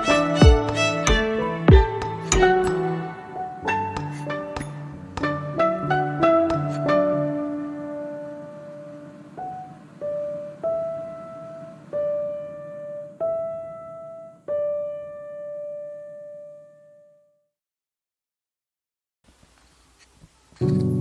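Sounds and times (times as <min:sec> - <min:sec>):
slow piano notes: 0:00.0 - 0:17.3, 0:20.6 - 0:21.0.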